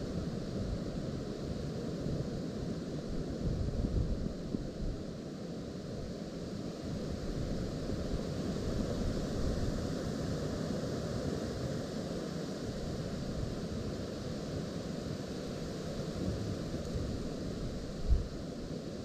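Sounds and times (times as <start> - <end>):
gusty wind on microphone: 16.2 - 18.7.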